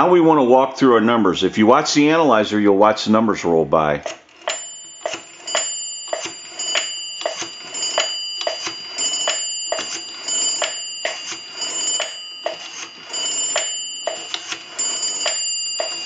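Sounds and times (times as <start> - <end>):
rotary dial clicking: 4.0 - 16.0.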